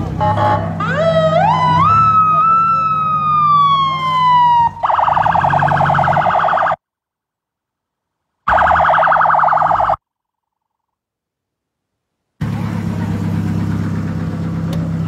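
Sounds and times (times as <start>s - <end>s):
police siren wail and warble: 0.8s - 6.8s, 8.5s - 10.0s.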